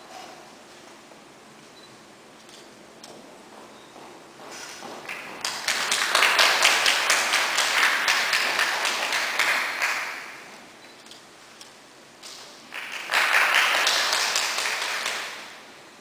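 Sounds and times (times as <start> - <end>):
audience applauding: 5.0 - 10.5, 12.6 - 15.6.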